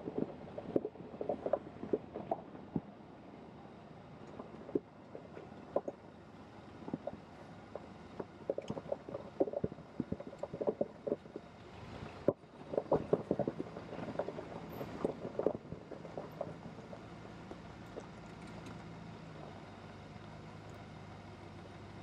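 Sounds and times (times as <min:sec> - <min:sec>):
low running hum: 0:00.0 - 0:22.0.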